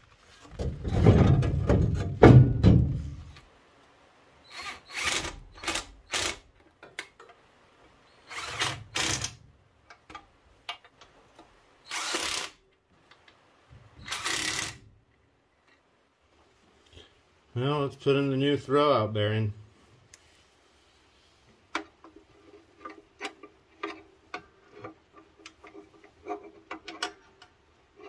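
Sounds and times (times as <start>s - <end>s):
heavy metal scraping and clunking: 0.4s - 3.3s
power tool bursts: 11.9s - 12.6s.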